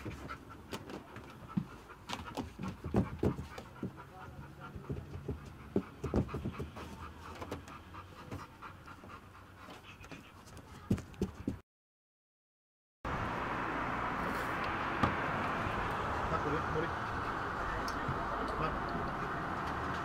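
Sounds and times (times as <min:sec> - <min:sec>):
dog panting: 0:00.0 - 0:11.6.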